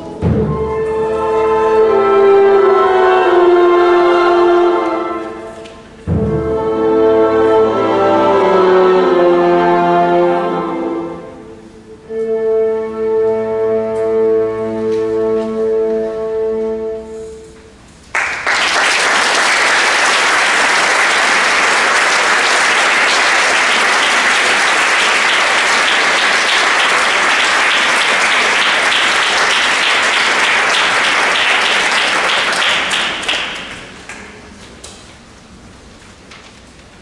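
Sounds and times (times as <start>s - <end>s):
chamber ensemble held note: 0.0s - 17.5s, 19.4s - 34.0s
audience applauding: 18.1s - 34.4s.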